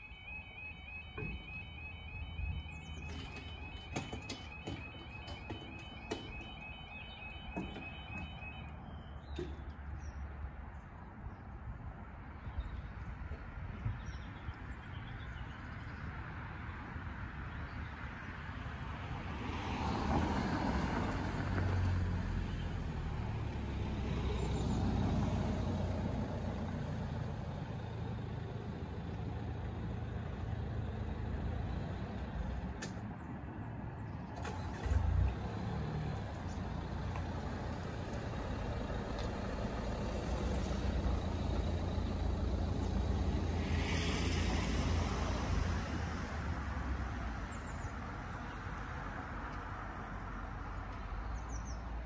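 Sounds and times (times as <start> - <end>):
car passing close by: 19.2 - 26.7, 34.4 - 47.2
car engines idling: 34.0 - 43.5.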